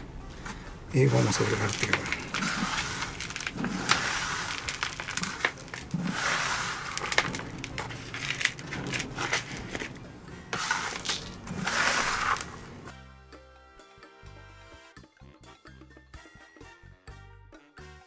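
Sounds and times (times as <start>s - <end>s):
gritty potting mix pouring: 1.0s - 12.9s
grit clicking on plastic pot: 1.6s - 10.0s.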